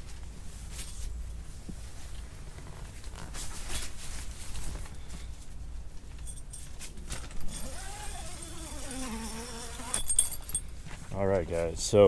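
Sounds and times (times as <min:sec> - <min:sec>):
fabric rustling: 0:00.0 - 0:05.6
flying insect buzzing: 0:07.6 - 0:10.2.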